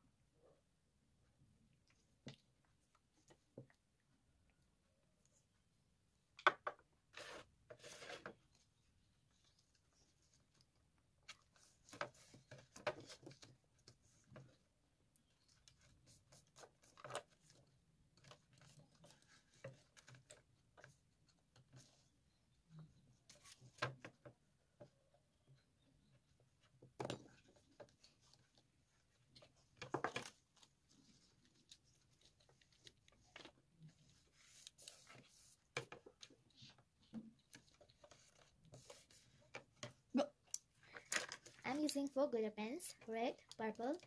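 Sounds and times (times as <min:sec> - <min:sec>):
paper rustling: 0:27.4 - 0:39.9.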